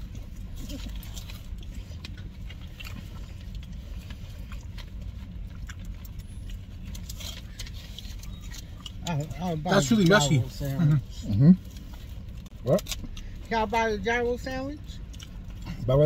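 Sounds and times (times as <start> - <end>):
sandwich wrappers crinkling: 0.0 - 13.5
car idling inside cabin: 0.0 - 16.0.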